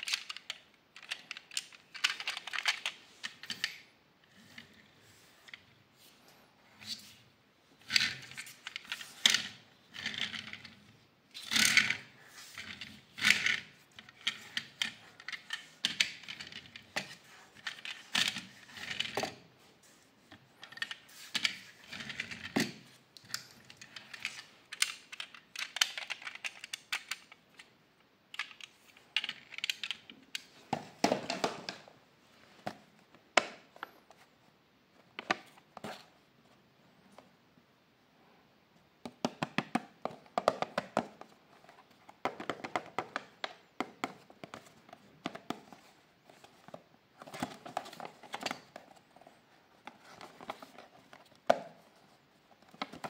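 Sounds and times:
toy car clicking and rattling: 0.0s - 3.9s, 20.6s - 27.7s.

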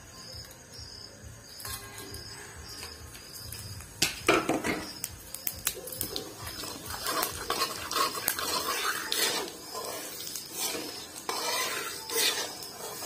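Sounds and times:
metal spatula scraping a pan: 1.6s - 3.0s, 6.2s - 13.0s
hot oil sizzling: 1.6s - 13.0s.

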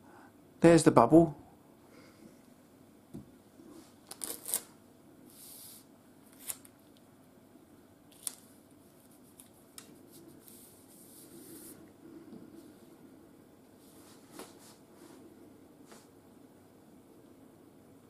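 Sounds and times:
soft rustling of paper: 3.7s - 7.0s, 8.1s - 11.9s.

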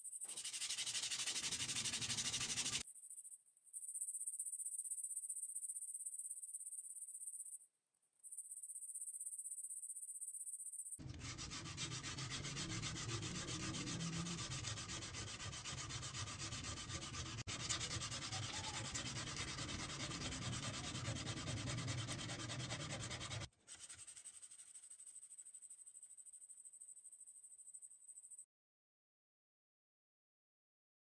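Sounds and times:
sandpaper scraping rusty metal: 0.2s - 2.8s, 11.0s - 24.7s.

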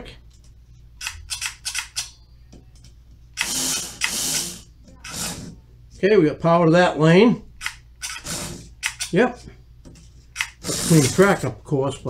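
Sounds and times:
small electric motor whirring: 3.4s - 5.5s.

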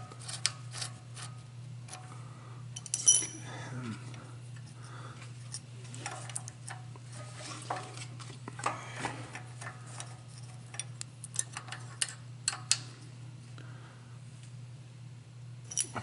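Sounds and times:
steady low hum: 0.0s - 16.0s
metallic clicks and clinks: 2.8s - 3.4s, 15.7s - 16.0s.

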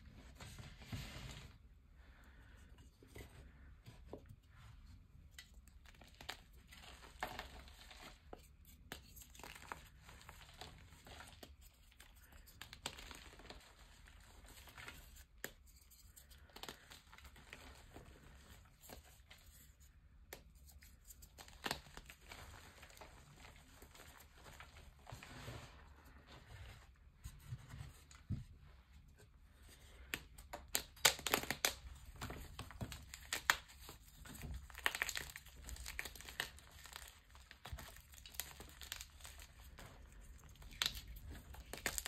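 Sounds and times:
chalk block crunching and crackling: 5.8s - 19.5s, 30.1s - 42.0s
chalk snapping and cracking: 30.0s - 42.0s.

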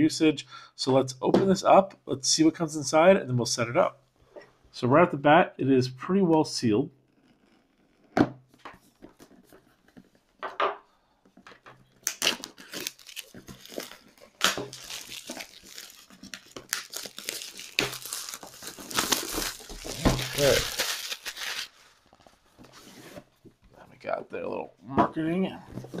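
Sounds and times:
plastic wrapping crinkling: 11.9s - 22.8s.

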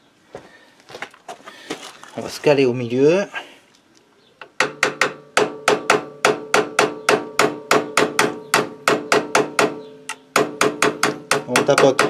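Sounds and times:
hammer tapping metal punch: 4.4s - 12.0s.

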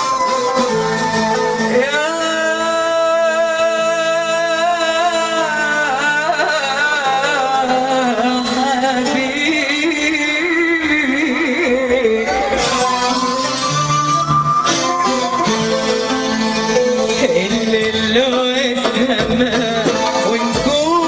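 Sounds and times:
instrumental backing: 0.0s - 21.0s
woman singing into microphone: 1.7s - 15.7s.

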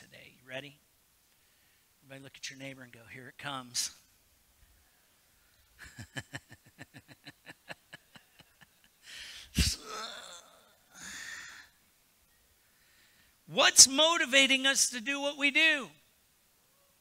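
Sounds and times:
man chuckling breathily: 5.8s - 10.2s
short breath out: 9.0s - 9.8s.

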